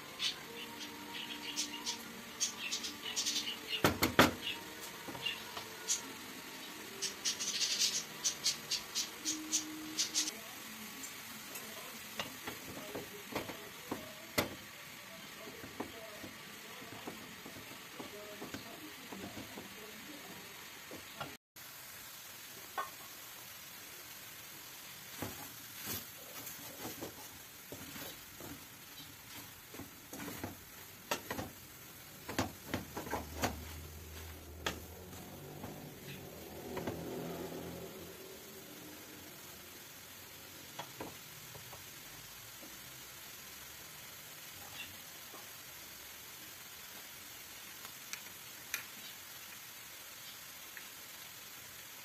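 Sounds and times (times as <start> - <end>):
herbs sizzling in a pan: 0.0 - 52.0
wooden spatula scraping a pan: 25.2 - 31.6.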